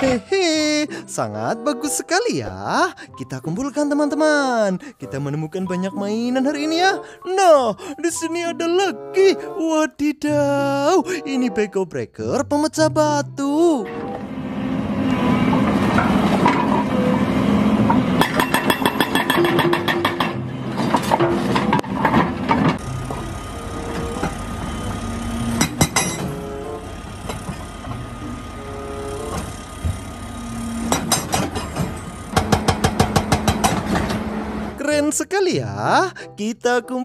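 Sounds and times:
diesel engines running: 0:00.0 - 0:02.0, 0:13.8 - 0:34.8
hydraulic breakers hammering rock: 0:17.9 - 0:26.5, 0:29.2 - 0:34.4.

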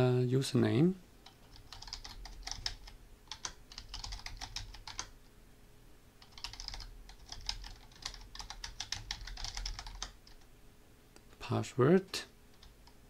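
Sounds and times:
computer keyboard typing: 0:01.2 - 0:05.1, 0:06.2 - 0:10.4, 0:12.6 - 0:13.0.

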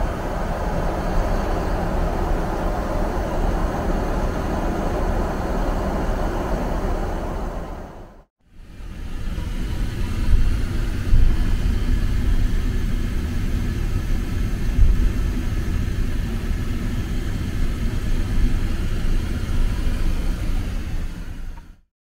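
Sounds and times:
airliner cabin rumble: 0:00.0 - 0:21.8.

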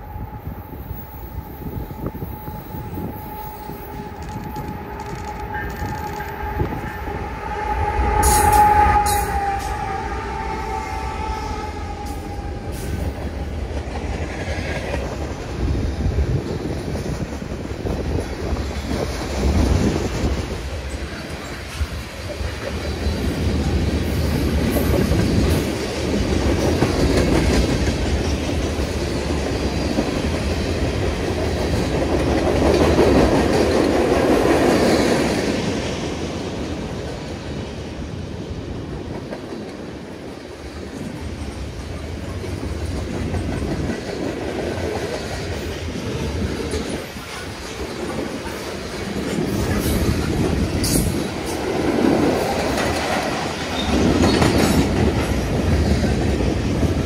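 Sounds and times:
train engine rumble: 0:00.0 - 0:57.0
train wheels clicking over rail joints: 0:11.9 - 0:36.0, 0:40.8 - 0:57.0.

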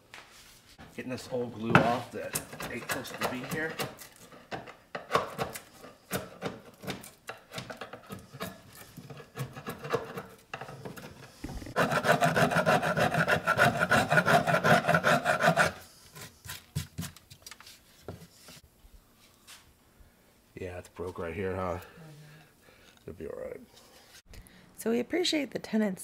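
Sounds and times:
screwdriver scraping wood: 0:01.8 - 0:17.2.

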